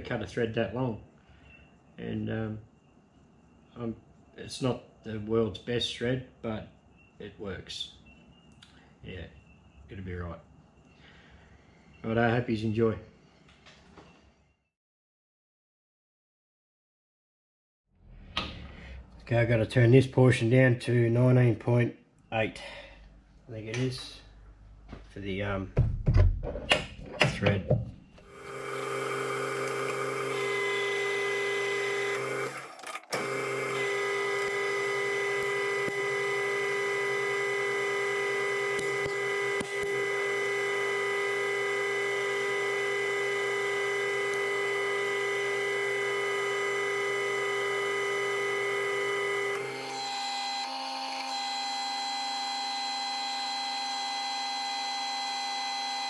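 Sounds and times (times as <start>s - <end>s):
metal lathe whining: 28.3s - 56.0s.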